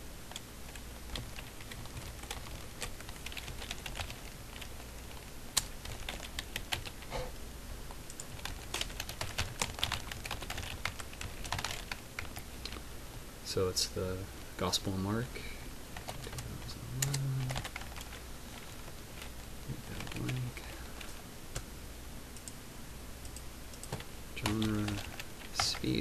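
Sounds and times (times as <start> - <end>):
low steady hum: 0.0 - 26.0
keyboard typing clicks: 23.2 - 25.8.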